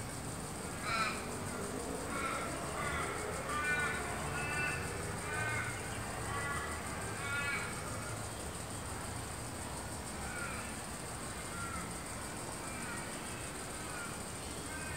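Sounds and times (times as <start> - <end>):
steady high hiss: 0.0 - 3.5.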